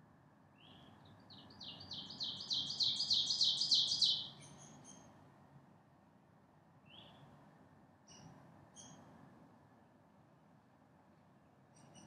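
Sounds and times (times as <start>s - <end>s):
songbird singing: 0.6s - 5.1s.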